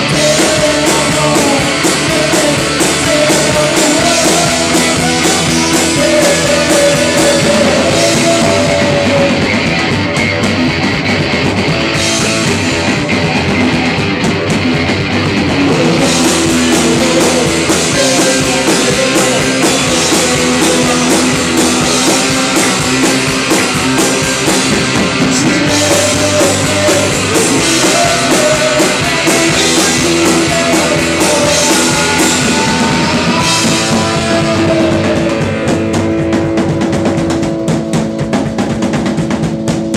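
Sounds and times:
man shouting vocals: 0.0s - 9.6s, 15.6s - 23.3s, 25.3s - 35.7s
distorted electric guitar: 0.0s - 39.9s
drum kit: 0.0s - 39.9s.

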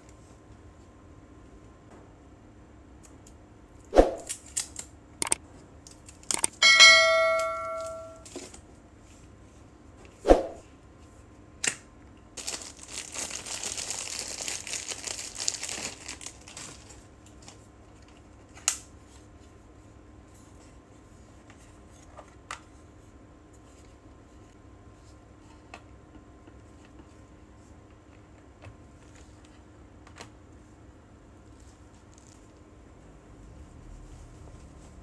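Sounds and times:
bell-like ding: 6.6s - 8.2s
cellophane wrap crinkling: 12.4s - 18.2s.

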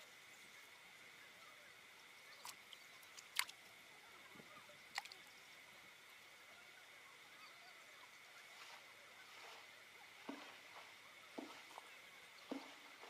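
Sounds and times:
sharp water splashes: 2.4s - 3.6s.

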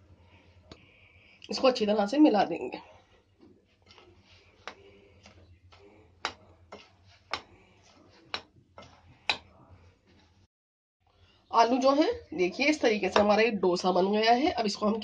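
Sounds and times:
spoon scraping mixture: 2.8s - 10.4s.

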